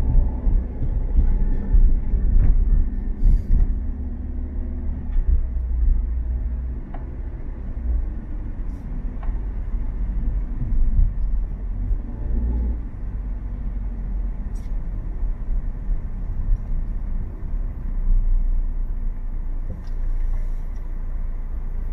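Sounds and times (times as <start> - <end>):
car cabin road rumble: 0.0 - 21.9.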